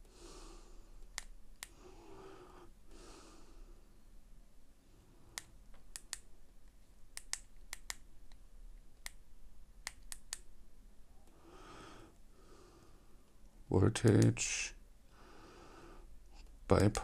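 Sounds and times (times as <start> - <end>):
soft breath: 0.0 - 1.0, 1.6 - 4.1, 11.2 - 13.4, 15.1 - 16.6.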